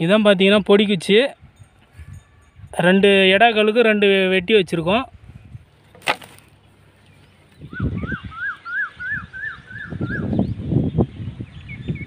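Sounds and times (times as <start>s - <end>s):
wind buffeting microphone: 0.4s - 5.9s, 6.5s - 12.0s
bird calling: 6.1s - 12.0s.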